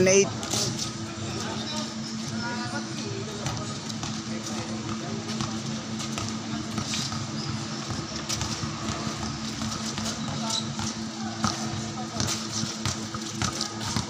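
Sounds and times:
steady low hum: 0:00.0 - 0:14.0
basketball bouncing on concrete: 0:03.3 - 0:14.0
shoe squeaks: 0:06.8 - 0:11.8.

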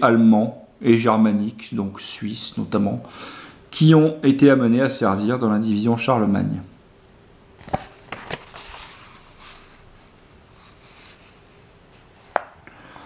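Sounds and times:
book pages turning: 0:07.6 - 0:11.4.

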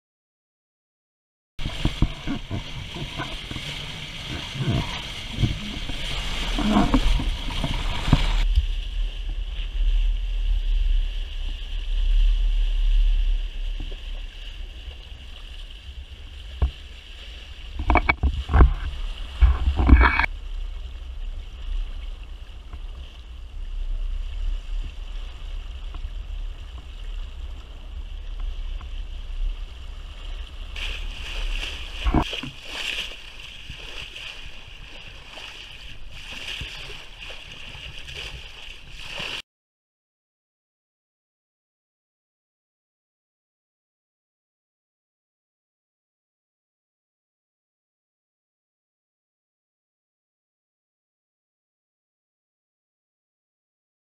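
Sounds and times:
water rushing along boat hull: 0:01.6 - 0:39.4
wind rumbling on microphone: 0:01.6 - 0:39.4.

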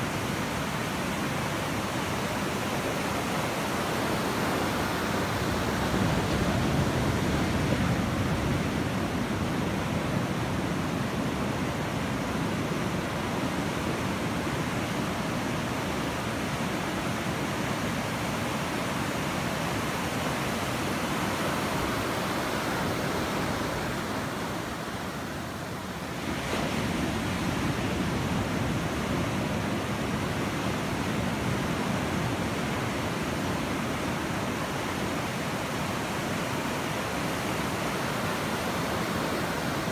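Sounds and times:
waves breaking on sand: 0:00.0 - 0:39.9.

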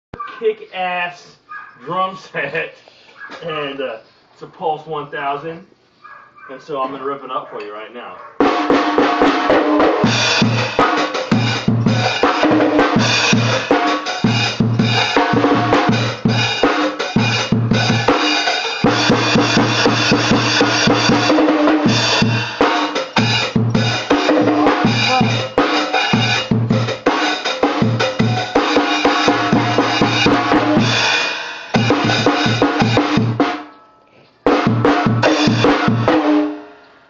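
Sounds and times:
drum kit played fast: 0:08.4 - 0:33.7, 0:34.5 - 0:36.7.

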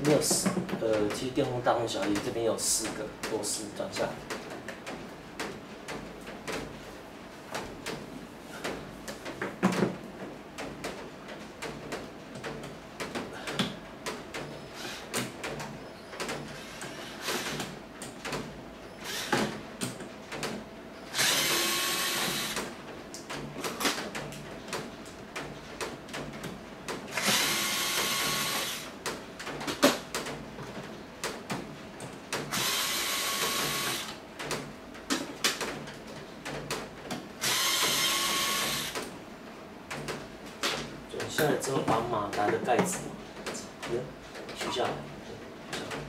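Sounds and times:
handling clicks and knocks: 0:00.0 - 0:02.4
electric drill whining: 0:21.1 - 0:22.6, 0:27.1 - 0:28.9, 0:32.5 - 0:34.1, 0:37.4 - 0:39.0.

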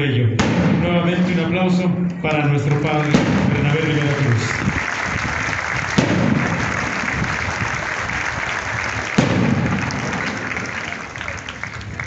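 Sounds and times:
crowd applauding: 0:02.5 - 0:12.0.

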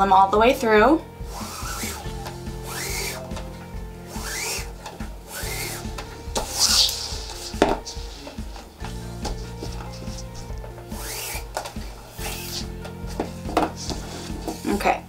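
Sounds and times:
background music: 0:00.0 - 0:15.0
cord rubbing through webbing: 0:01.2 - 0:14.9.

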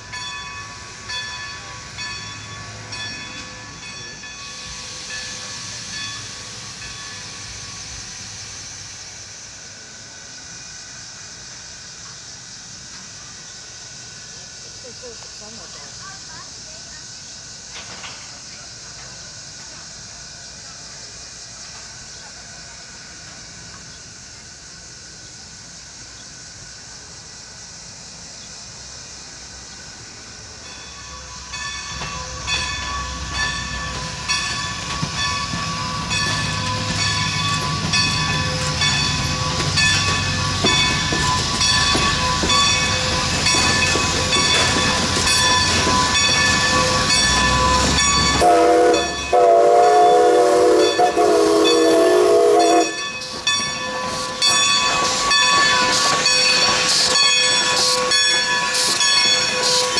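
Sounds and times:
train wheels squealing on rails: 0:00.0 - 0:59.9
steam whistle: 0:45.7 - 0:53.2.

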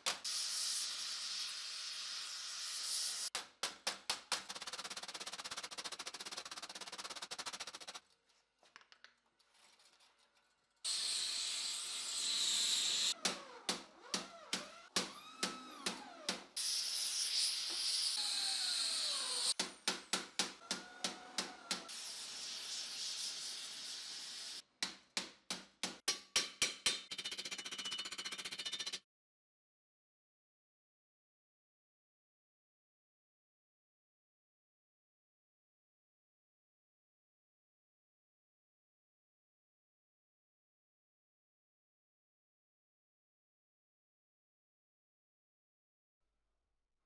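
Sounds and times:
hammer striking steel plate: 0:24.8 - 0:29.0.

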